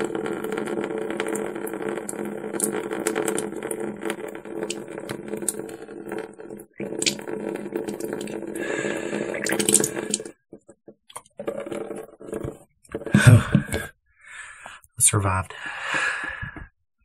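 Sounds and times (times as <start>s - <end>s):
liquid trickling and dripping: 0.2s - 10.4s.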